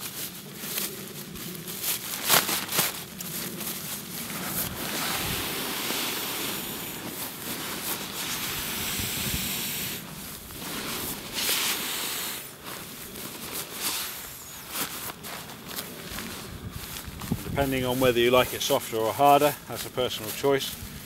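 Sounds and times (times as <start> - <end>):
fabric rustling: 0.0 - 18.5
air hissing through valve: 4.4 - 12.6.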